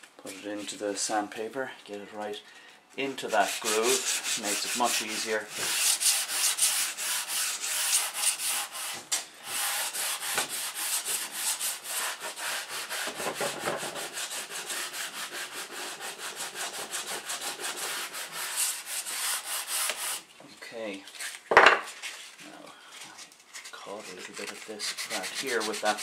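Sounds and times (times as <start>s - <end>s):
sandpaper scraping on wood: 3.2s - 20.3s, 23.5s - 26.0s.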